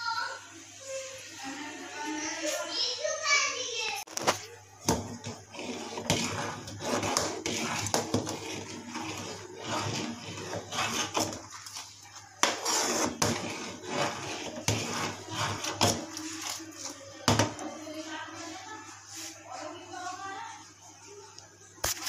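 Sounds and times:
ladle scraping a metal pot: 4.2 - 17.6.

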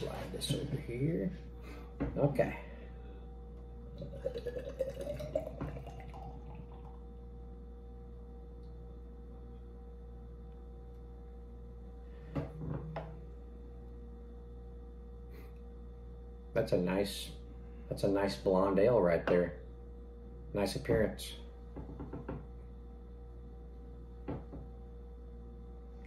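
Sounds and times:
steady low hum: 0.0 - 26.0
beer pouring into glass: 3.9 - 7.1.

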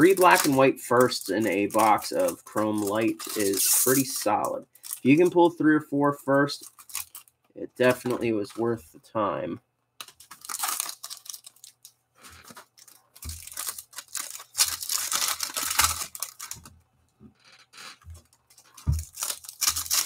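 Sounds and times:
wrapper tearing and crinkling: 0.0 - 5.3, 6.6 - 7.3, 10.0 - 16.7, 18.2 - 20.0.

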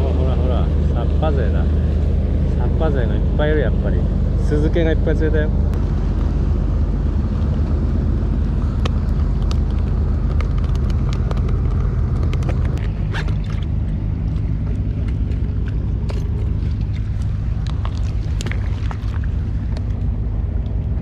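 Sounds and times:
motor droning: 0.0 - 21.0.

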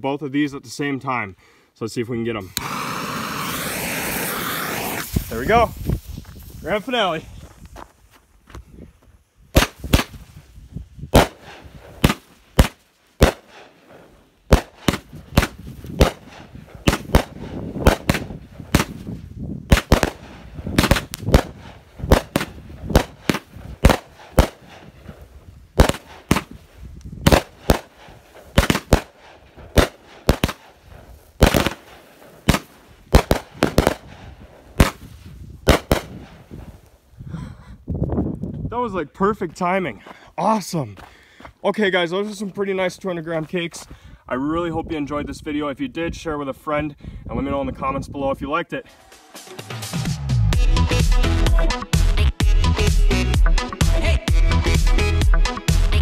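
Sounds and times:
fireworks banging: 2.5 - 7.1, 9.5 - 10.4, 11.1 - 36.8.

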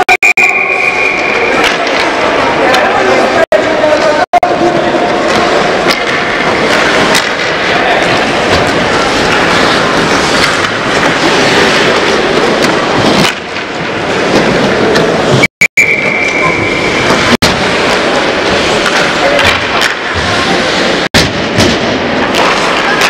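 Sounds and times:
loud steady rush: 0.2 - 23.0
sticks and puck clacking on ice: 1.5 - 15.4, 16.2 - 23.0.

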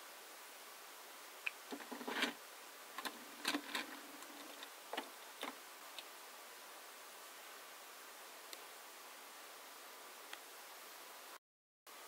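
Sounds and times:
toy car clicking on plastic track: 3.0 - 5.6.

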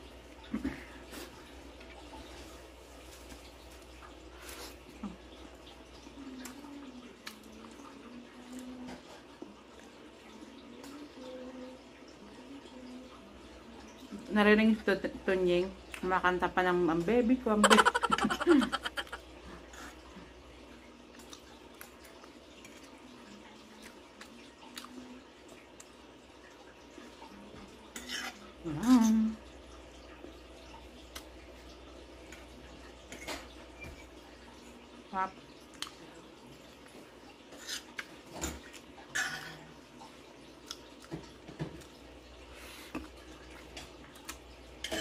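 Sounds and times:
wet chewing noises: 21.0 - 26.0, 40.5 - 42.0, 42.6 - 44.5.

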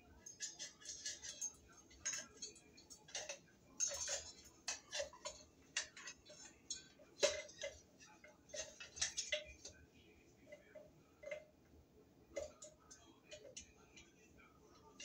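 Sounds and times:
light clicks taps and rustles: 0.2 - 9.8, 10.5 - 15.0.

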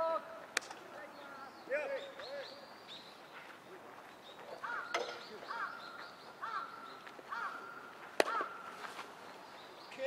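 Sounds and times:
sharp crack: 0.5 - 0.9, 8.2 - 8.5
bird calling: 1.0 - 10.0.

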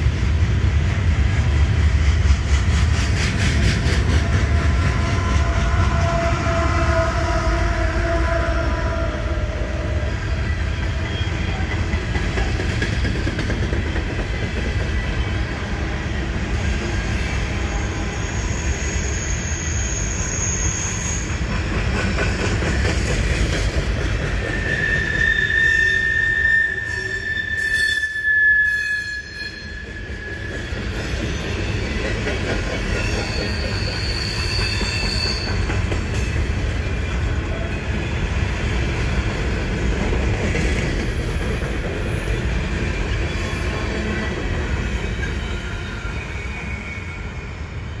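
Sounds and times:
freight train rumbling past: 0.0 - 48.0
steel wheels squealing: 9.4 - 23.4, 24.1 - 40.0, 42.0 - 48.0.

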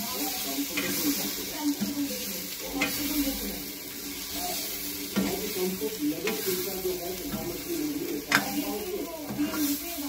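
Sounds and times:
food sizzling in a pan: 0.0 - 10.0
metal spatula scraping pan: 0.3 - 10.0.

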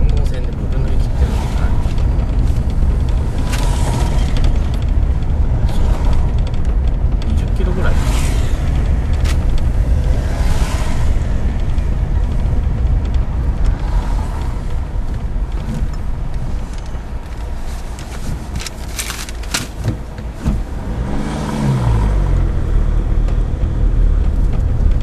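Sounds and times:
car engine and road noise: 0.0 - 25.0.

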